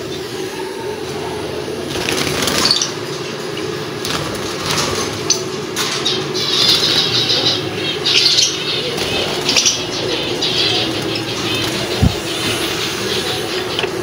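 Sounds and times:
steady low hum: 0.0s - 14.0s
birds flapping wings: 1.8s - 6.0s.

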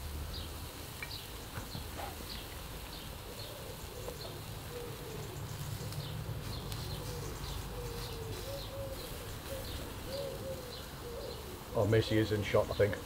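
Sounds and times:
small birds chirping: 0.2s - 13.0s
pigeon cooing: 1.6s - 11.9s.

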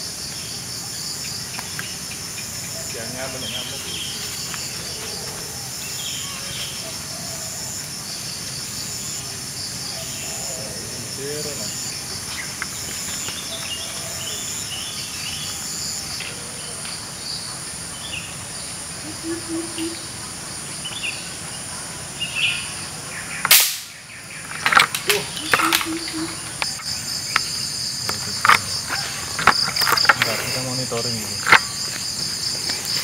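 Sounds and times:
insect chorus: 0.0s - 33.0s
loud sharp crack: 23.4s - 24.0s.

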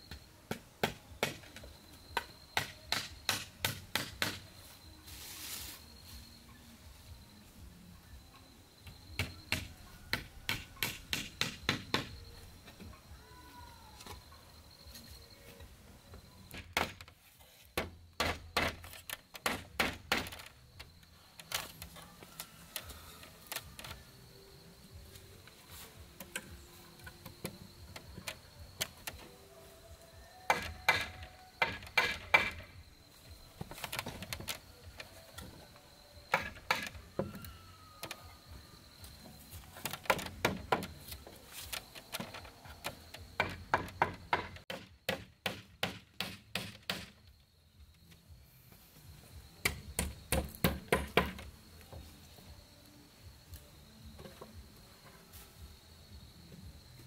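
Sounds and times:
faint birdsong: 0.0s - 45.2s
hammer driving nails into wood: 30.5s - 32.6s, 43.4s - 47.2s, 49.6s - 51.4s.

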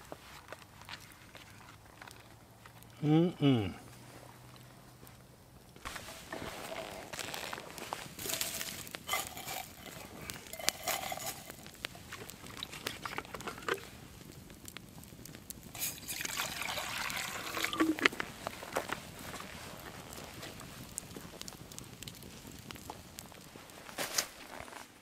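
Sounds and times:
campfire crackling and popping: 0.0s - 3.1s, 3.8s - 25.0s
liquid pouring: 8.2s - 11.7s, 15.8s - 18.1s.

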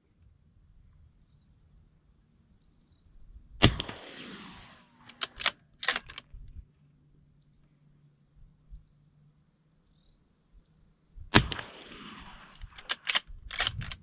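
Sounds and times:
suppressed gunshot with echo: 3.6s - 5.3s, 11.3s - 13.0s
sharp clicks: 5.0s - 6.6s, 11.4s - 14.0s.

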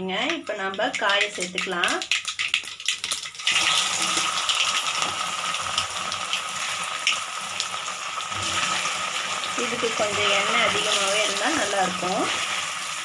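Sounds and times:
seeds popping in hot oil: 0.0s - 13.0s
taro slices sizzling in oil: 2.1s - 13.0s.

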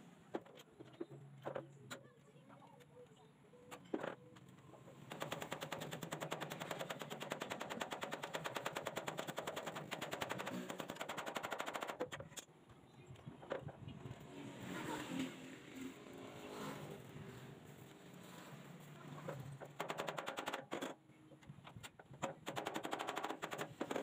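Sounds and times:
power tool rattling: 5.1s - 12.3s, 19.2s - 21.0s, 21.7s - 24.0s.

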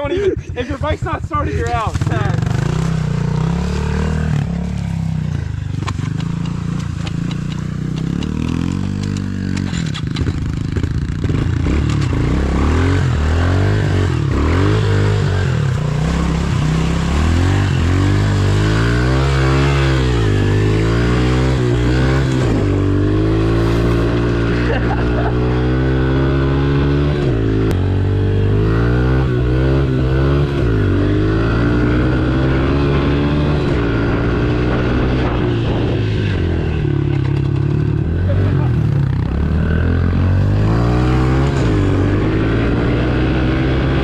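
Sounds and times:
motorbike engine revving: 0.0s - 44.0s
bike rattling over rough ground: 0.5s - 12.4s.

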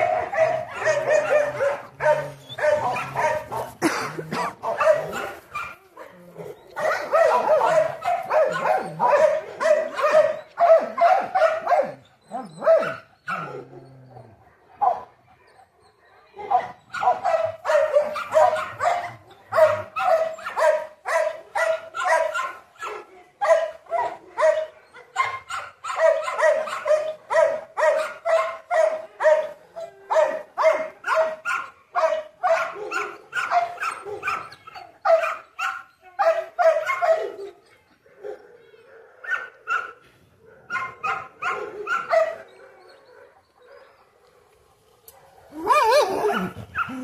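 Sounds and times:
dog barking high-pitched: 0.0s - 5.8s, 6.8s - 12.0s, 12.6s - 13.5s, 16.5s - 37.5s, 40.7s - 42.4s.

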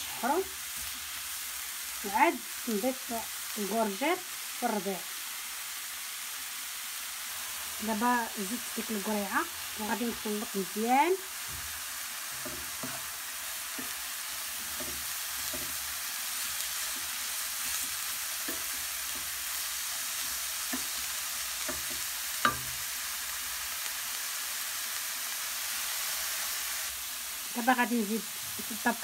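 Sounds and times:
vegetables sizzling in a frying pan: 0.0s - 29.0s
wooden spatula scraping the pan: 11.4s - 21.0s.

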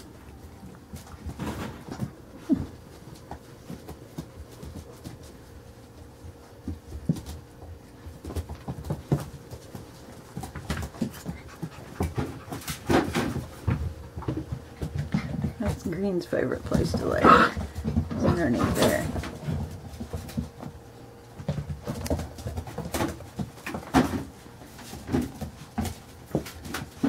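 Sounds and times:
paws clicking on hard floor: 0.0s - 27.0s.

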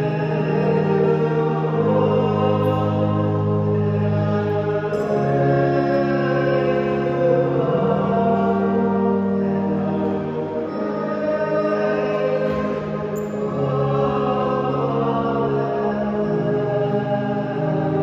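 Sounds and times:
slow sacred choir music: 0.0s - 18.0s.

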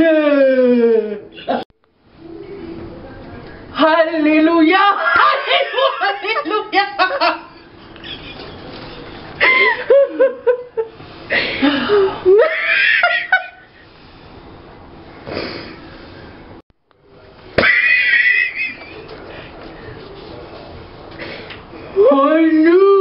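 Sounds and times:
high-pitched squealing laugh: 5.0s - 10.9s, 11.6s - 13.7s, 17.6s - 19.1s
person laughing: 9.4s - 13.7s, 17.6s - 19.1s.

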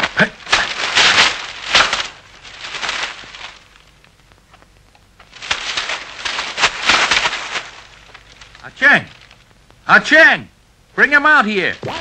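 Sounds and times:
paper crackling and tearing: 0.0s - 4.6s, 5.2s - 9.5s
frames snapping: 0.0s - 9.5s.

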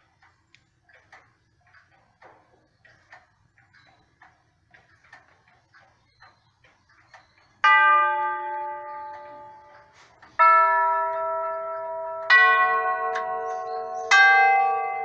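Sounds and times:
clock chime tubes ringing: 7.6s - 15.0s.

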